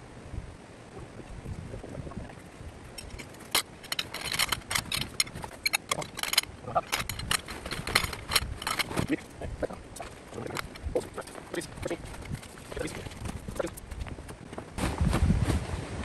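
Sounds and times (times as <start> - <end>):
metal tent poles clanking: 3.0 - 14.0.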